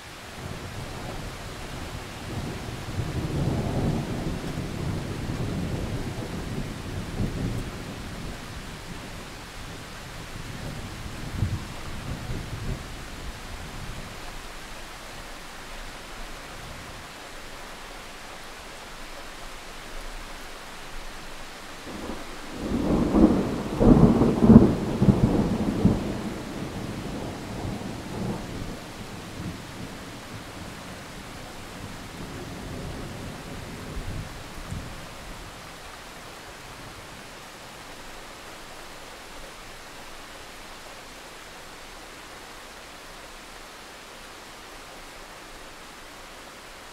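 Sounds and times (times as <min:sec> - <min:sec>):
steady rain: 0:00.0 - 0:46.9
thunder rumbling: 0:21.9 - 0:35.6.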